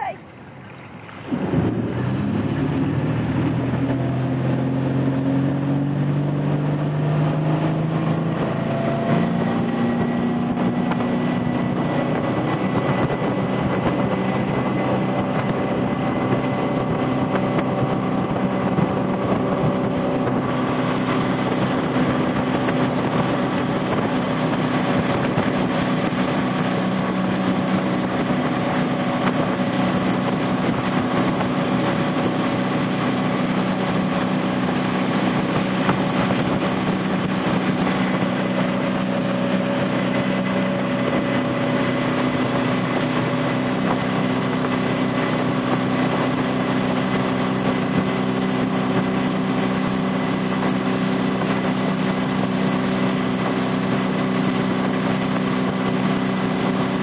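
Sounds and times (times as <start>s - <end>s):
water spray rushing: 0.0s - 4.8s
boat engine: 0.0s - 57.0s
wind: 0.0s - 57.0s.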